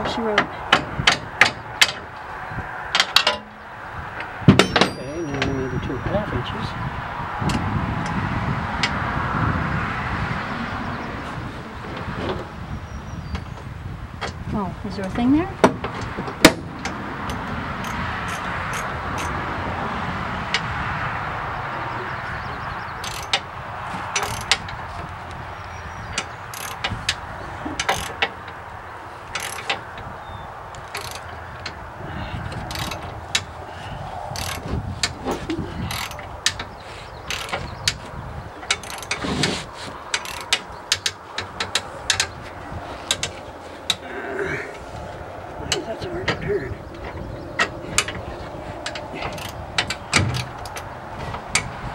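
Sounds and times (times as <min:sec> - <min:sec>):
steady rushing noise: 0:00.0 - 0:51.9
ratchet wrench clicking: 0:23.0 - 0:23.4, 0:26.5 - 0:26.8, 0:29.4 - 0:29.8, 0:30.9 - 0:31.3, 0:34.3 - 0:35.1, 0:40.1 - 0:42.3.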